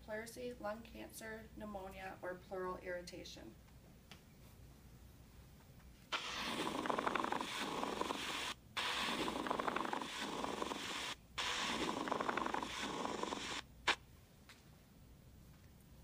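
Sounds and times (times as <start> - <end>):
grating friction rub: 6.2 - 14.0.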